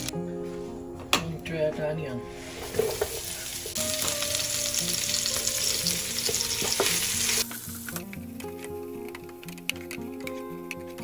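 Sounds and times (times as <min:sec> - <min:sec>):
onions sizzling in hot oil: 0:02.3 - 0:08.4.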